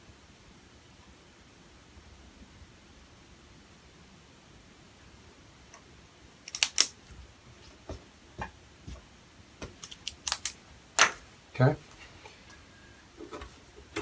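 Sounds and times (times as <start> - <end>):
faint computer fan noise: 0.0 - 14.0
pen clicks: 6.5 - 6.9, 9.8 - 10.6.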